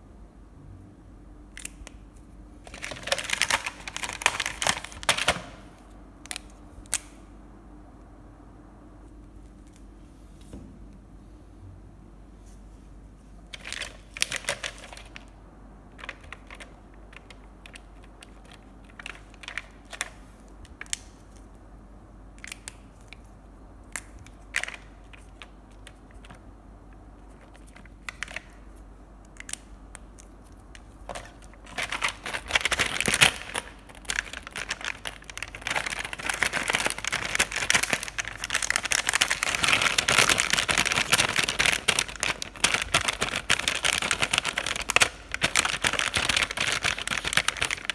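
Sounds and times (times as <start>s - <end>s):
plastic pack crinkling: 2.6s - 5.6s, 13.5s - 21.5s, 22.4s - 26.4s, 27.1s - 47.9s
marker pens clicking on plastic: 15.9s - 21.2s, 29.2s - 47.9s.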